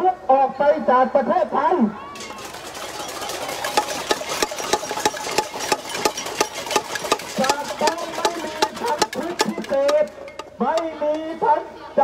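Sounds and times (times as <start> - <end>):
large crowd clapping: 2.2 - 9.8.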